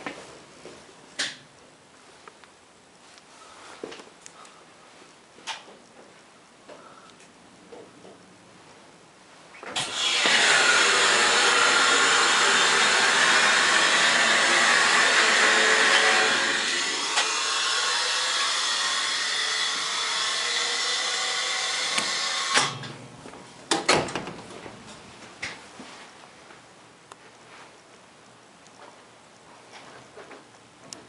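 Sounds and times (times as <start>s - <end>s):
hydraulic pump rushing noise: 9.8s - 22.9s.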